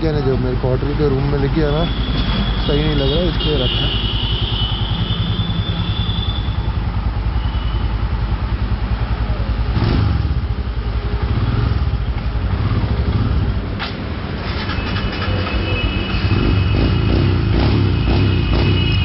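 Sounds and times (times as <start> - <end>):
motorcycle engine idling: 0.1 - 13.6.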